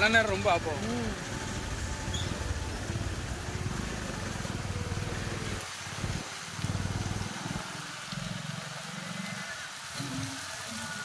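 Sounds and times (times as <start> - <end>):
rain and tyres on wet road: 0.0 - 11.0
motorbike engine running: 0.3 - 7.6.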